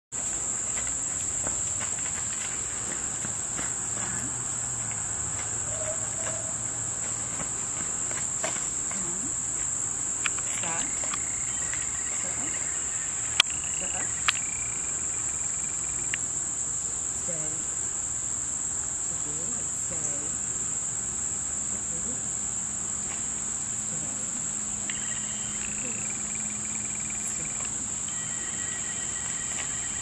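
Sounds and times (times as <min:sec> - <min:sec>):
high-pitched insect chorus: 0:00.2 - 0:30.0.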